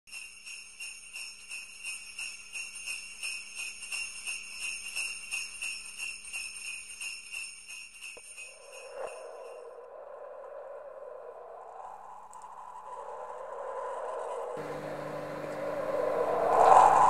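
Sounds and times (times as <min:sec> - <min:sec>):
sleigh bells jingling: 0:00.1 - 0:10.4.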